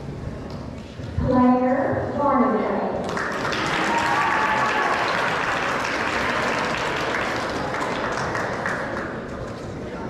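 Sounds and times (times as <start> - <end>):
audience applauding: 3.0 - 9.6.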